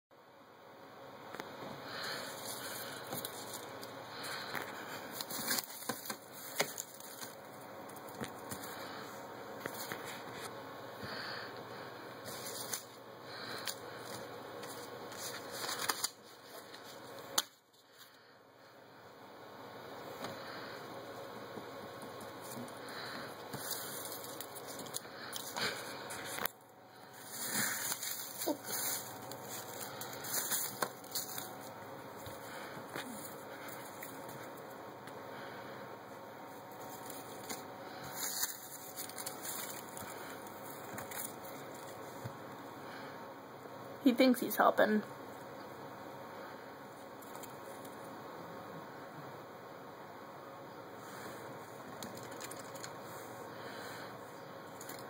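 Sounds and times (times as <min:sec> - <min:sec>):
sharp paper crackles: 0:01.9 - 0:09.0, 0:12.3 - 0:18.0, 0:22.4 - 0:26.5, 0:27.2 - 0:31.7, 0:36.8 - 0:42.0, 0:51.9 - 0:53.0
shredded paper rustling and crinkling: 0:02.0 - 0:08.9, 0:12.2 - 0:17.1, 0:22.4 - 0:26.5, 0:27.1 - 0:31.8, 0:36.7 - 0:42.1.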